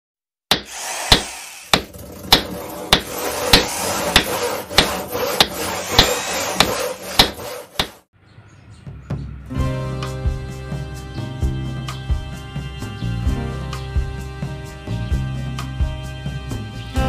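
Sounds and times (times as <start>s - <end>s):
hammer blows: 0.5s - 8.0s
workshop tools running: 0.5s - 8.0s.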